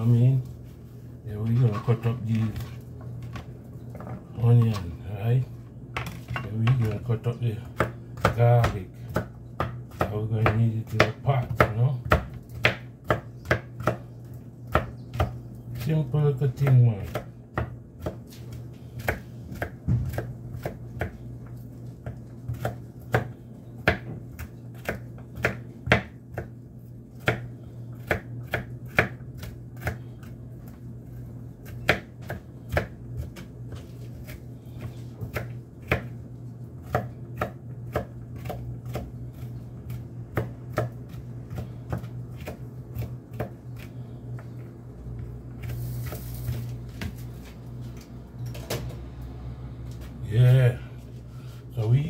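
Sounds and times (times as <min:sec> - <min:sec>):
knife chopping on cutting board: 0:05.9 - 0:14.1, 0:14.7 - 0:15.9, 0:16.5 - 0:21.2, 0:22.0 - 0:26.6, 0:27.2 - 0:30.8, 0:31.6 - 0:36.2, 0:36.8 - 0:44.5
low hum: 0:38.6 - 0:52.0.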